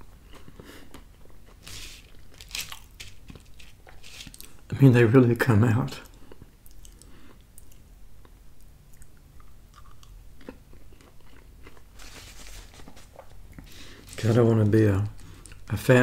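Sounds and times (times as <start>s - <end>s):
person chewing: 0.0s - 4.7s, 6.0s - 14.2s
paper napkin rustling: 1.6s - 4.4s, 12.0s - 14.6s.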